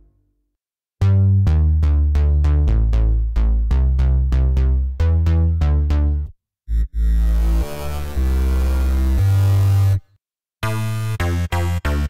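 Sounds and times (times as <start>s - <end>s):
synthesizer bass notes: 1.0s - 10.0s.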